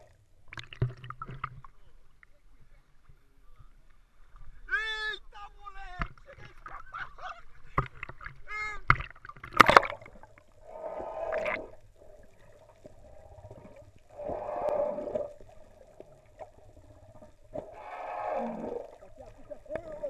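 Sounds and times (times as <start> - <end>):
low rumble of water: 0.0 - 20.0
whale calling underwater: 10.6 - 11.8, 13.1 - 15.6, 17.6 - 19.2.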